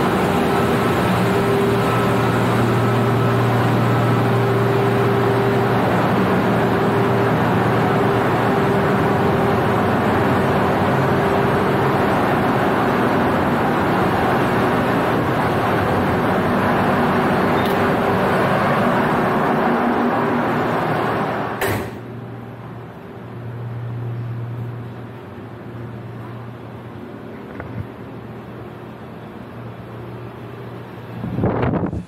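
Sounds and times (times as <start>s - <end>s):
engine-room machinery drone: 0.0s - 32.0s
quiet machinery hum: 0.0s - 32.0s.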